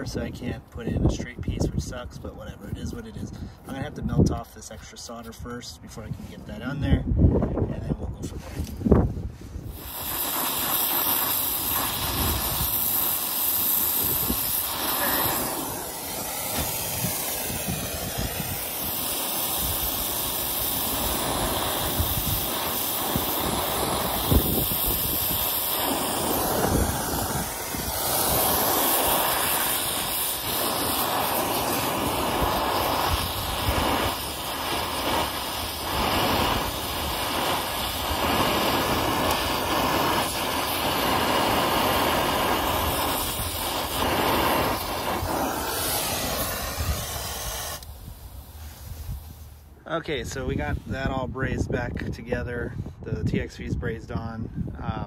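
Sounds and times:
torch flame hissing: 0:08.4 - 0:51.2.

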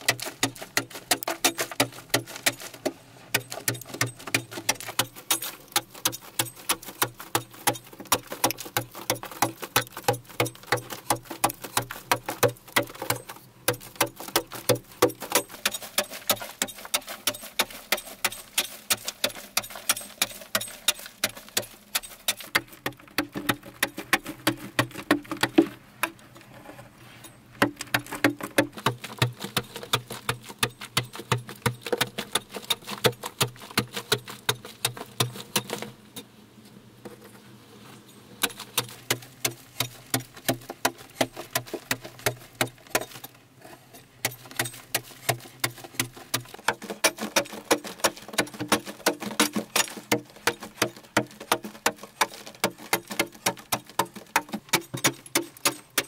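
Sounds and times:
digging tool striking earth: 0:00.0 - 0:26.2, 0:27.2 - 0:36.0, 0:38.4 - 0:56.0.

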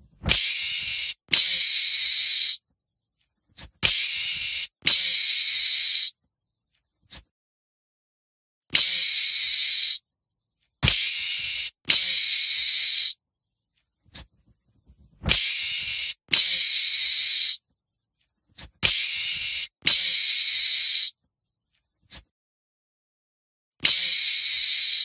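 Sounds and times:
meerkat hissing calls: 0:00.3 - 0:02.6, 0:10.9 - 0:13.2, 0:15.3 - 0:17.6.

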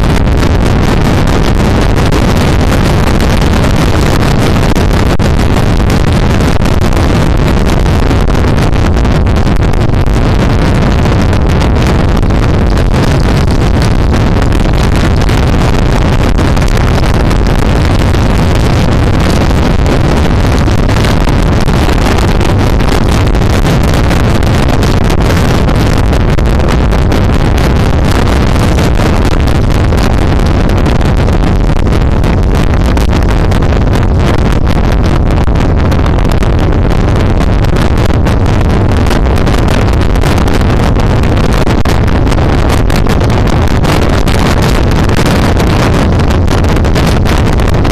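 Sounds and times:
wind buffeting microphone: 0:00.0 - 0:47.9.

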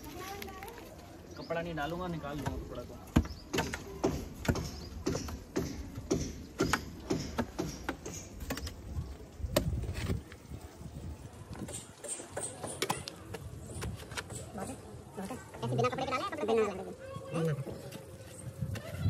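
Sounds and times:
spade chopping into dirt: 0:02.4 - 0:08.8.

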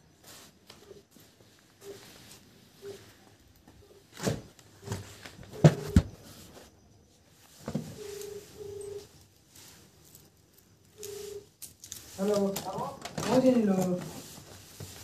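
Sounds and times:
phone being knocked about: 0:05.6 - 0:06.1.

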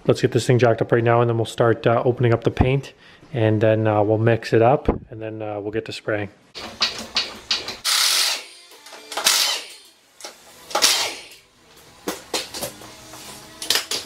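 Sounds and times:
faint background music: 0:00.0 - 0:14.0
harsh power tool bursts: 0:07.8 - 0:09.9, 0:10.7 - 0:11.4.

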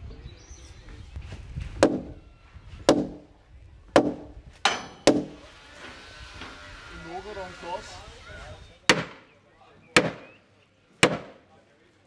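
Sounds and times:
hammer knocking on timber: 0:04.0 - 0:05.4.

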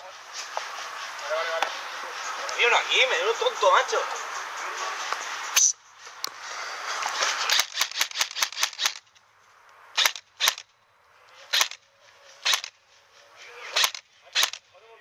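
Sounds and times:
airsoft gun shots: 0:07.4 - 0:09.0, 0:10.0 - 0:10.7, 0:11.5 - 0:11.8, 0:12.4 - 0:12.8, 0:13.7 - 0:14.6.

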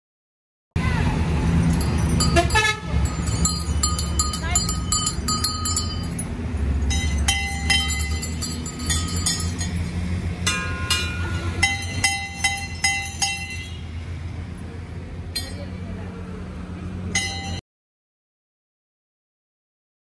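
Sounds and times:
metal bells ringing: 0:01.4 - 0:14.0, 0:15.3 - 0:15.9, 0:17.1 - 0:17.6.

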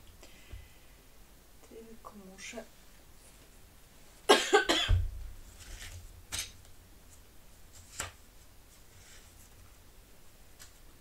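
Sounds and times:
paper rustling: 0:05.4 - 0:06.5, 0:07.1 - 0:09.8.

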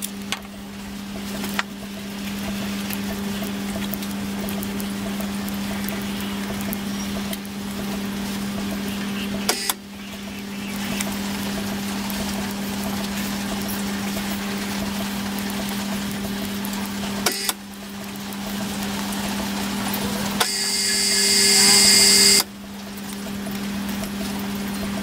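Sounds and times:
low mechanical hum: 0:00.0 - 0:25.0
high-pitched whine: 0:20.0 - 0:22.5.

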